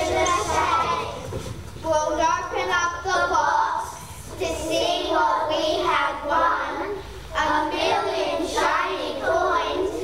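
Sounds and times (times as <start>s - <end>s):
children singing: 0.0s - 1.4s, 2.6s - 10.0s.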